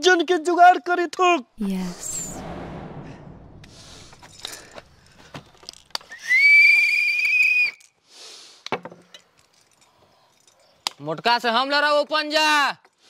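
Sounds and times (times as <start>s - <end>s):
high-pitched whistle: 6.1s - 7.9s.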